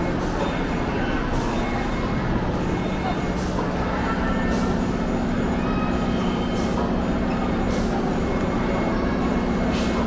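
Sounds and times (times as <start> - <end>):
engine running nearby: 0.0 - 10.0.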